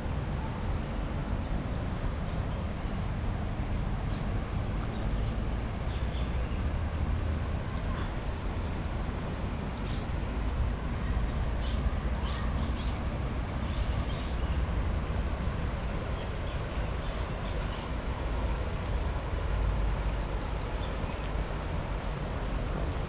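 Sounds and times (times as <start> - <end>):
fast-flowing river rushing: 5.5 - 23.0.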